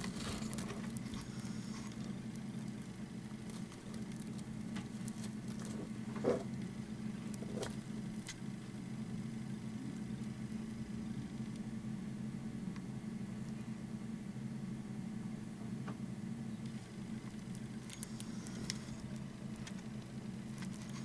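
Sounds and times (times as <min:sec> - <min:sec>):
scratches and rustles in hay: 0:00.0 - 0:08.4
steady low hum: 0:00.0 - 0:21.0.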